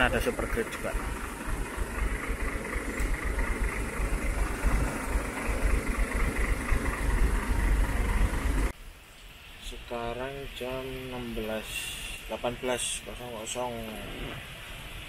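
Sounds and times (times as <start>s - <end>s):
diesel truck engine idling: 0.0s - 8.7s.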